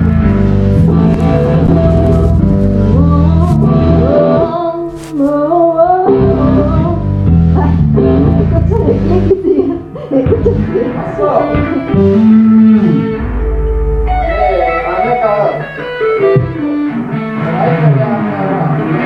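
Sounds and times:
live rock band playing: 0.0s - 3.1s, 10.9s - 18.0s.

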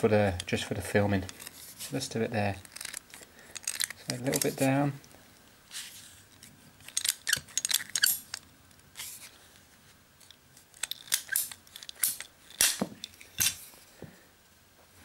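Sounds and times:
pipe cutter clicking and crunching: 2.6s - 4.8s, 6.8s - 8.4s, 10.2s - 13.6s.

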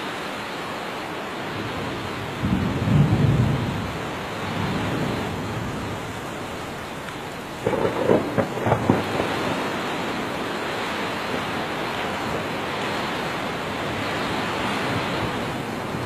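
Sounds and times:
heavy rain: 0.0s - 16.0s
thunder claps: 7.5s - 10.6s.

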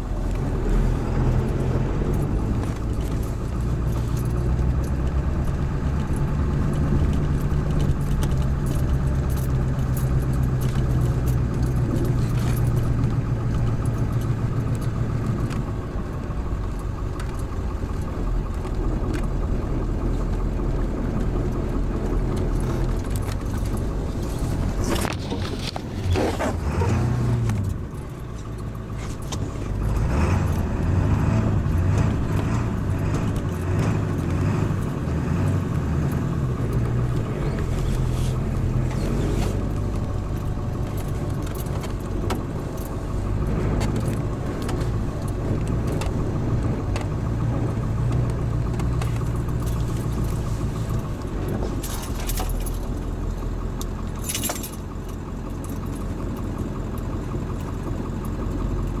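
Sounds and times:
light continuous rattle: 0.0s - 59.0s
vehicle engine running: 0.0s - 59.0s.

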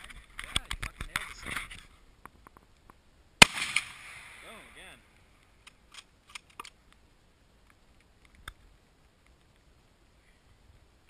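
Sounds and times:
faint sharp clicks: 5.2s - 7.0s.

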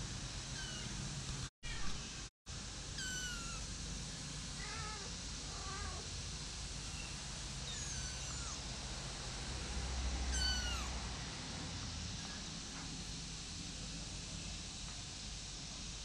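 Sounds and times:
kittens mewing: 0.6s - 0.9s, 3.0s - 3.6s, 7.7s - 8.6s, 10.3s - 10.9s.

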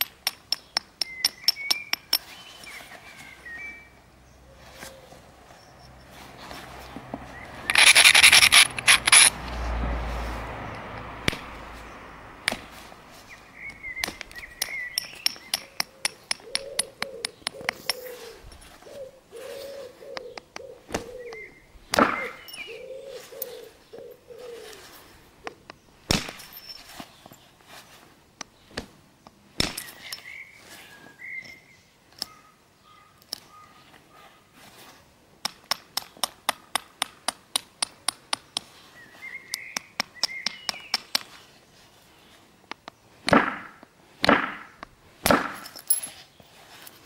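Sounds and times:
sharp clicks of flint: 7.6s - 9.4s
stone rubbing on flint: 7.6s - 9.4s, 14.1s - 19.9s.

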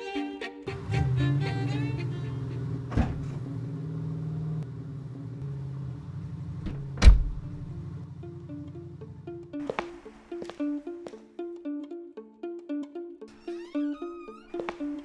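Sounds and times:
car engine idling: 0.7s - 9.6s
car door slamming: 1.9s - 3.7s, 6.5s - 7.8s.

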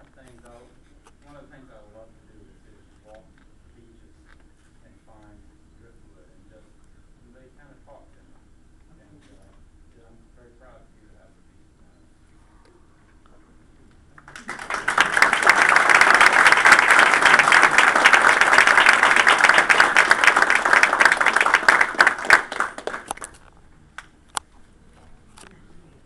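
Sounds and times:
audience applauding: 14.2s - 23.4s.

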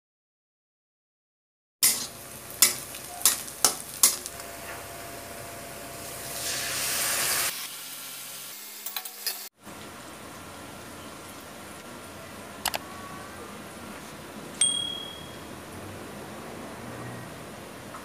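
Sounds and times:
spatula scraping metal pan: 1.8s - 4.3s
onion sizzling in oil: 1.8s - 9.5s.

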